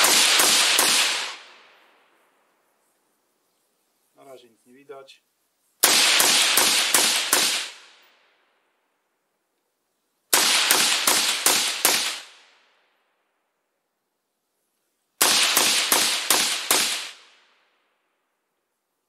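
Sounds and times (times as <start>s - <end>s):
suppressed rifle shots: 0.0s - 1.6s, 5.8s - 8.1s, 10.3s - 12.4s, 15.2s - 17.4s.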